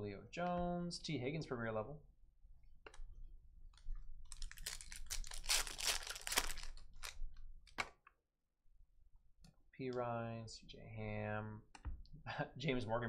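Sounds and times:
foil wrapper tearing and crinkling: 4.3s - 7.2s.

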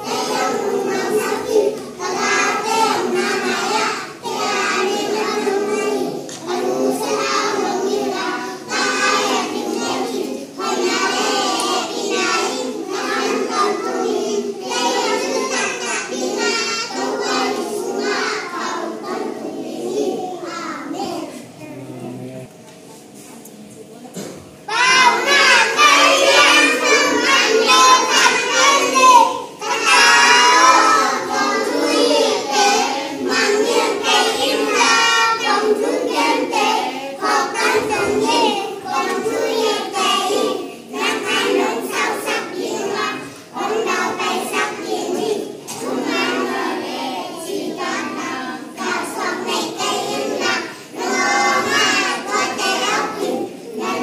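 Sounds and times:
children singing together: 0.0s - 23.2s, 24.2s - 54.0s.

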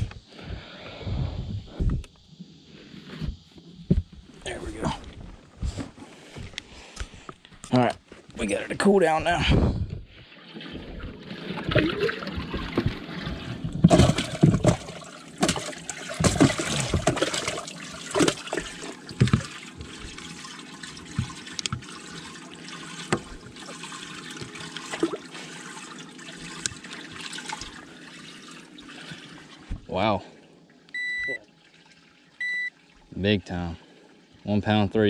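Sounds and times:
water trickling and splashing: 10.2s - 35.0s.

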